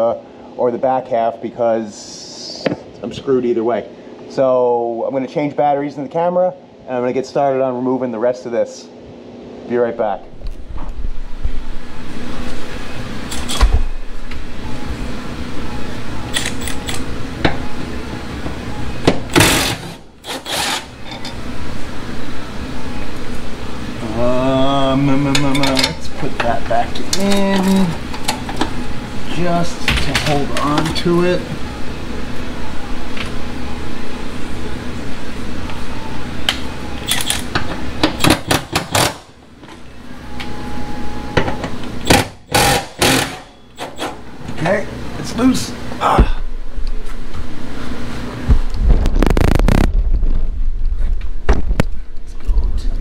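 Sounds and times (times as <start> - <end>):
steady mechanical hum: 0.0 - 53.0
cordless power ratchet running: 19.3 - 20.9, 42.1 - 43.5
steady low drone: 45.8 - 53.0.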